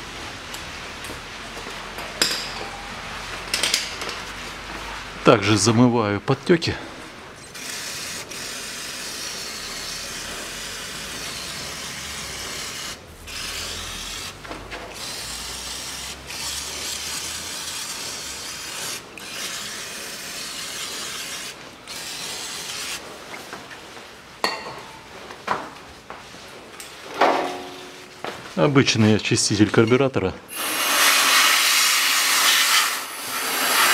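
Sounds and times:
aerosol spray hissing: 0:07.6 - 0:14.4, 0:15.0 - 0:23.0, 0:30.5 - 0:33.9.

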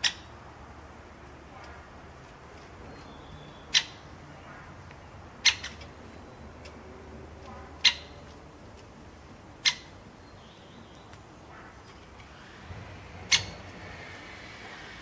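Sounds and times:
woodpecker kik calls: 0:00.0 - 0:00.3, 0:02.9 - 0:06.8, 0:07.6 - 0:08.4, 0:09.6 - 0:12.1, 0:13.2 - 0:14.0.

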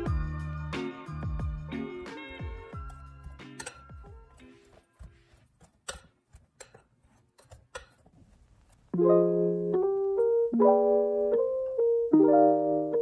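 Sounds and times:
soft piano music: 0:09.0 - 0:13.0.

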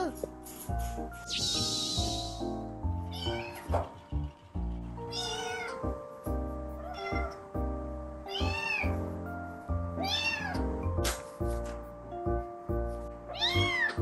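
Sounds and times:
kitten meowing: 0:03.1 - 0:03.7, 0:05.1 - 0:05.8, 0:06.8 - 0:07.4, 0:08.3 - 0:09.0, 0:10.0 - 0:10.6, 0:13.3 - 0:14.0.

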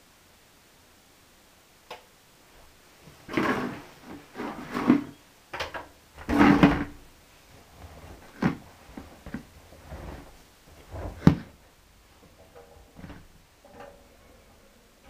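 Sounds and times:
plastic bucket set down: 0:04.4 - 0:07.0, 0:08.2 - 0:08.6, 0:10.8 - 0:11.6, 0:12.3 - 0:14.0.

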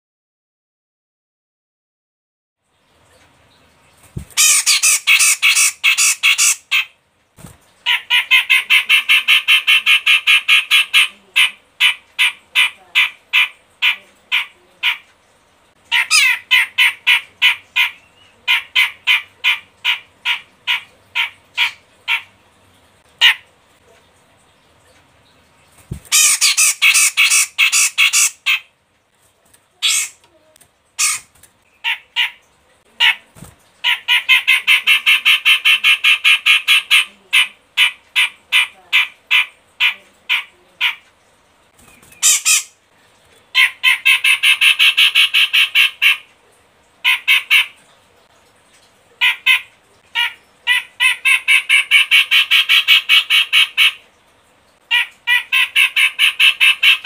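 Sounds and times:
bird calling harsh repeated notes: 0:04.2 - 0:07.0, 0:15.9 - 0:22.3, 0:26.0 - 0:28.7, 0:29.8 - 0:30.2, 0:31.0 - 0:32.4, 0:42.0 - 0:42.8.

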